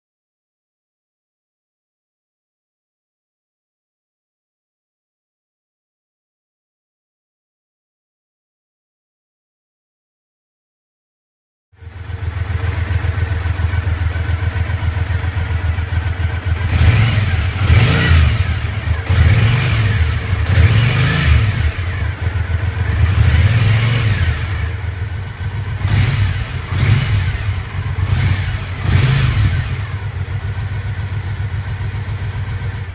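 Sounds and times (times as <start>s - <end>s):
motorcycle engine idling and revving: 11.8s - 32.9s.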